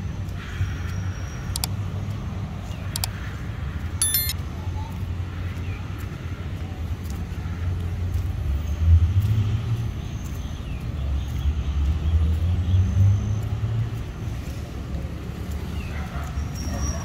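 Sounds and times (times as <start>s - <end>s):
passing vehicle engines rumbling: 0.0s - 17.0s
faint high chirps and squeaks: 4.0s - 4.3s.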